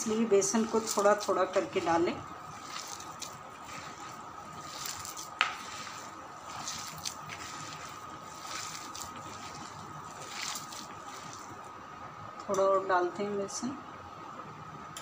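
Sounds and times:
wet squishing of kneaded dough: 0:00.0 - 0:11.9.

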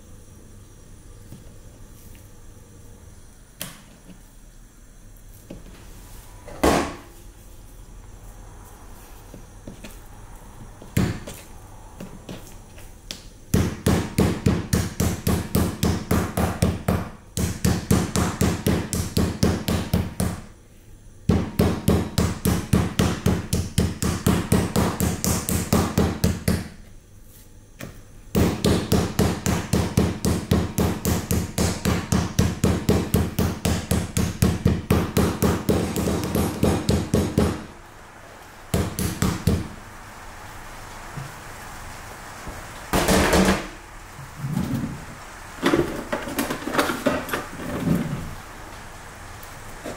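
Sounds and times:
mallet pounding meat on board: 0:13.6 - 0:20.4, 0:21.3 - 0:26.7, 0:28.3 - 0:37.6.

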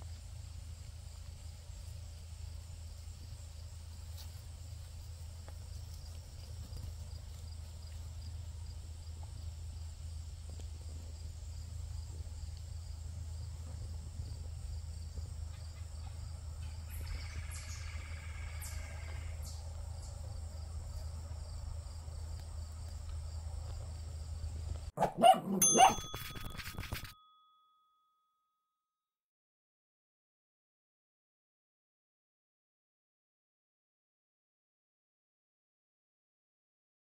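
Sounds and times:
low outdoor rumble: 0:00.0 - 0:24.9
crickets chirping: 0:00.0 - 0:25.8.

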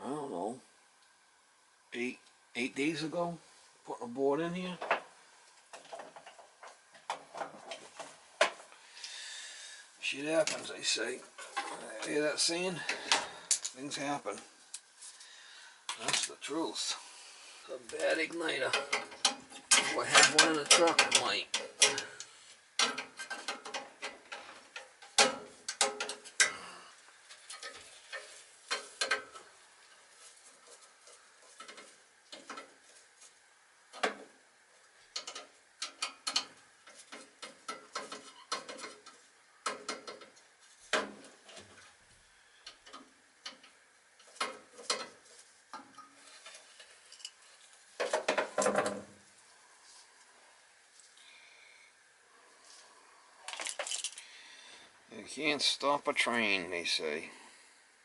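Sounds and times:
tools clicking and clattering: 0:18.6 - 0:26.6, 0:35.1 - 0:41.7, 0:53.5 - 0:54.2.

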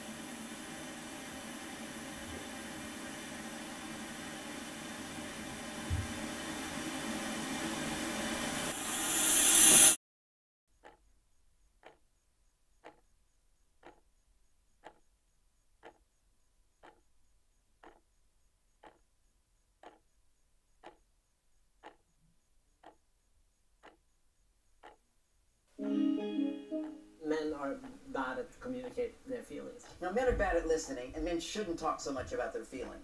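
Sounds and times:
clock ticking: 0:10.8 - 0:12.0, 0:12.7 - 0:15.1, 0:15.8 - 0:17.1, 0:17.8 - 0:19.1, 0:19.8 - 0:21.1, 0:21.8 - 0:25.6, 0:27.6 - 0:29.2.

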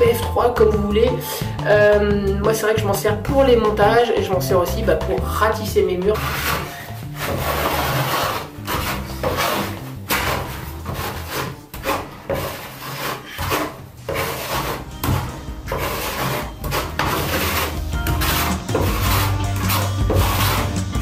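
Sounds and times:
trowel scraping adhesive on wall: 0:05.9 - 0:21.0.

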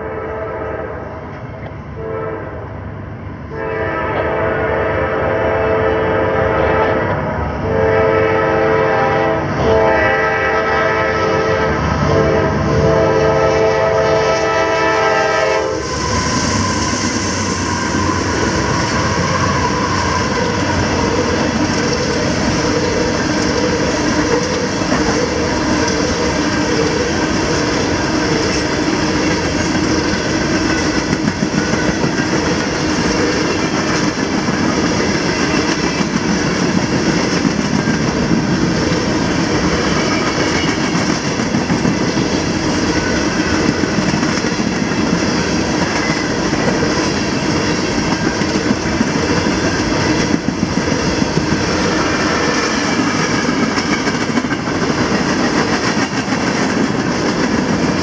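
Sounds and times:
train wheel rumble and rail clatter: 0:00.0 - 0:58.0
locomotive horn blasts: 0:02.0 - 0:02.5, 0:03.5 - 0:15.8.

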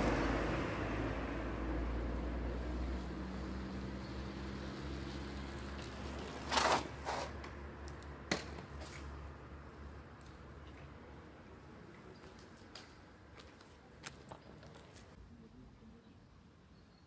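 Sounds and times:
bicycle rattling over rails: 0:05.0 - 0:09.1.

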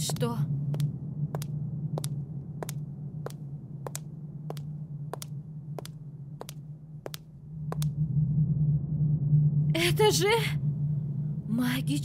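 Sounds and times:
steady low hum: 0:00.0 - 0:12.0
footsteps clicking: 0:00.8 - 0:07.9.

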